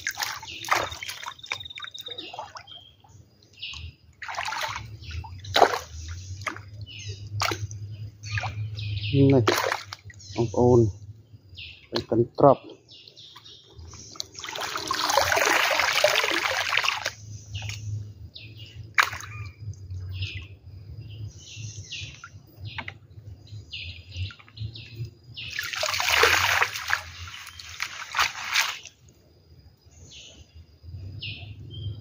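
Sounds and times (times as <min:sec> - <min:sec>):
water splashing and sloshing: 0:00.0 - 0:10.6, 0:13.1 - 0:21.0, 0:24.1 - 0:29.3
birds chirping: 0:00.0 - 0:32.0.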